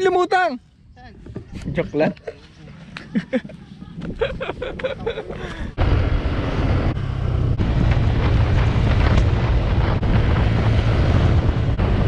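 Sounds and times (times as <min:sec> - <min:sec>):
wind rushing over microphone: 0:03.3 - 0:12.0.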